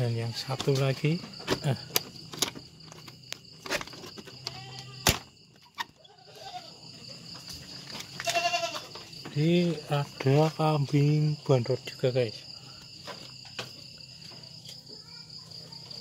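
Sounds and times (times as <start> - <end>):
crickets chirping: 0.0 - 16.0
goat bleating: 4.4 - 5.1, 6.0 - 6.9, 8.1 - 8.9.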